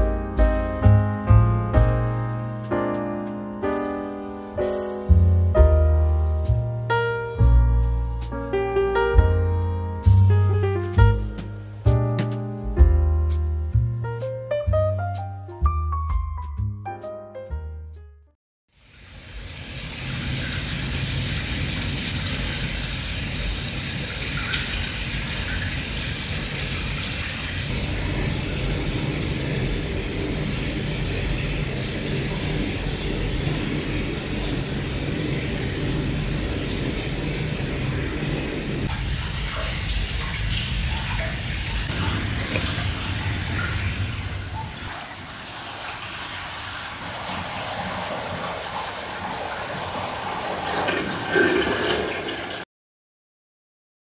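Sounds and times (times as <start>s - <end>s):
water pouring into a bath: 18.7s - 52.7s.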